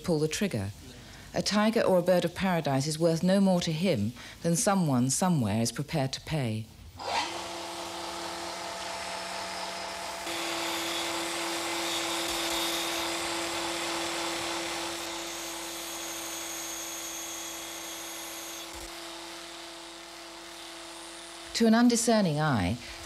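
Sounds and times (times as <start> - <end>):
rotary tool grinding with high whine: 7.0 - 22.3.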